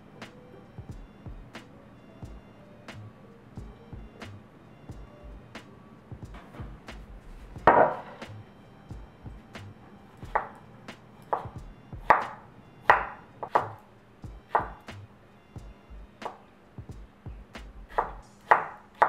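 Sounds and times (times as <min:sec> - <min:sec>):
knife cutting fruit on board: 0:10.4 - 0:10.6, 0:18.0 - 0:19.0.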